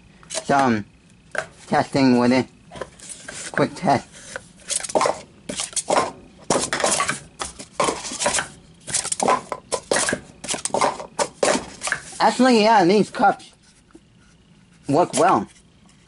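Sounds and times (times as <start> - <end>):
plastic cups clacking: 4.8 - 12.1.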